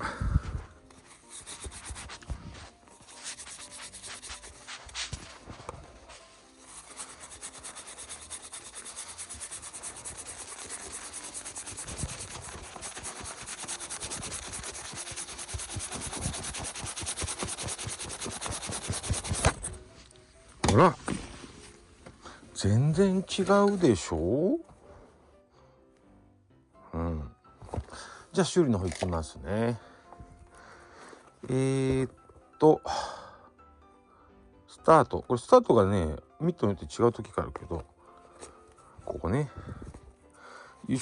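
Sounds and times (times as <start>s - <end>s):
leather glove being rubbed: 0.4s - 20.0s
handling leather glove: 0.4s - 24.8s, 27.5s - 30.5s, 37.4s - 40.4s.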